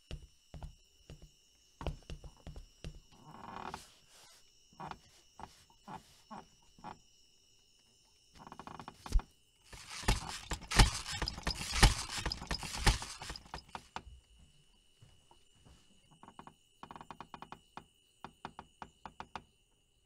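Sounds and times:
small hard knocks and clicks: 8.5 - 14.1
rustling: 8.9 - 13.9.

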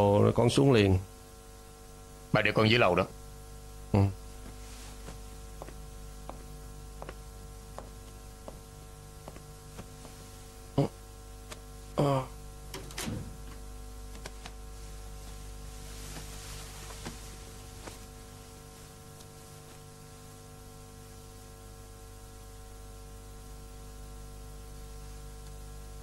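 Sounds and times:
electrical hum: 0.0 - 26.0
man making short vocal sounds: 3.9 - 4.2, 10.7 - 11.0, 11.9 - 12.4.

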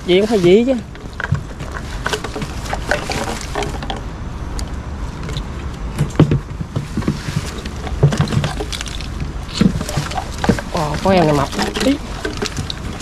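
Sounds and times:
low steady hum: 0.0 - 13.0
water splashing: 0.0 - 13.0
fish trap knocking and rattling: 5.2 - 13.0
heavy thumps: 5.4 - 13.0.

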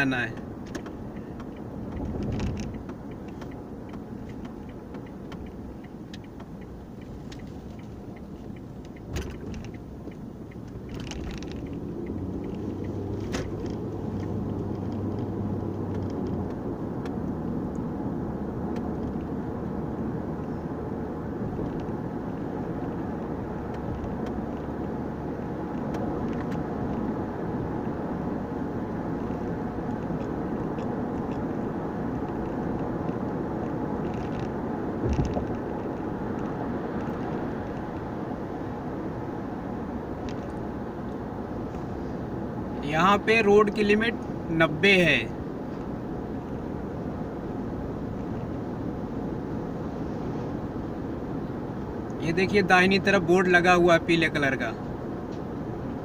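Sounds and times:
car cabin road noise: 0.0 - 56.0.

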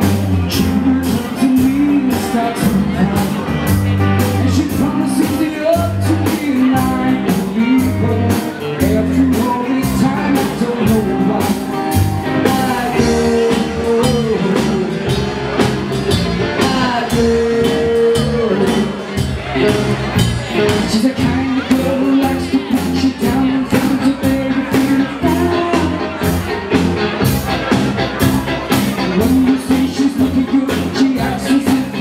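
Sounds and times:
man singing: 0.0 - 26.9, 28.7 - 32.0
bass guitar: 0.0 - 32.0
electric guitar: 0.0 - 32.0.

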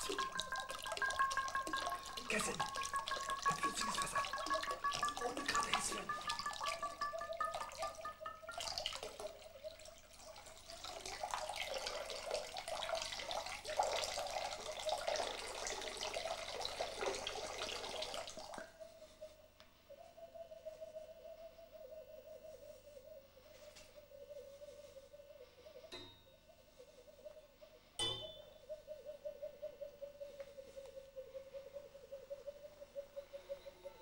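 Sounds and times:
water splashing into ceramic bowl: 0.0 - 18.7
steady held tone: 25.8 - 26.8, 27.8 - 28.7.

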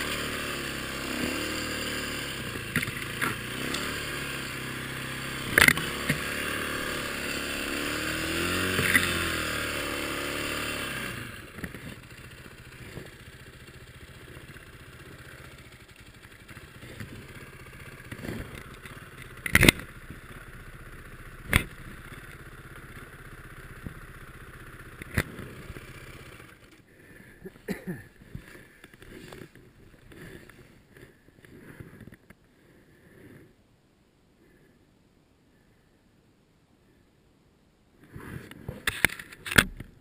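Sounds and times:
dirt bike engine at low revs: 0.0 - 33.7, 38.0 - 40.0.

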